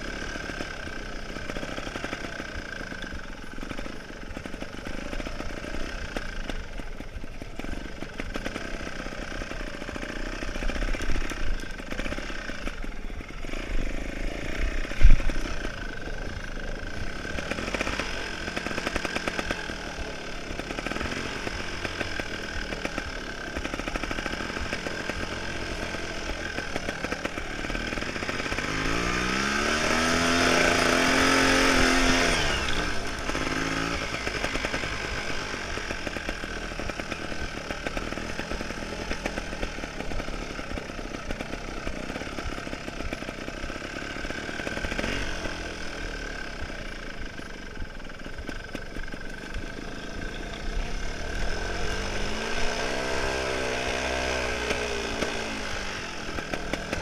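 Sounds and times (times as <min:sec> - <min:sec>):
motorcycle engine running: 0:00.0 - 0:57.0
engine revving up: 0:07.8 - 0:47.0, 0:49.8 - 0:57.0.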